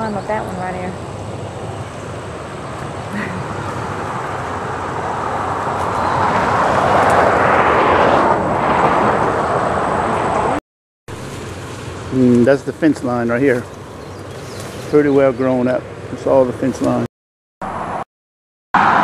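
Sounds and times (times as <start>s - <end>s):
vehicle passing by: 0.0s - 10.6s, 18.8s - 19.0s.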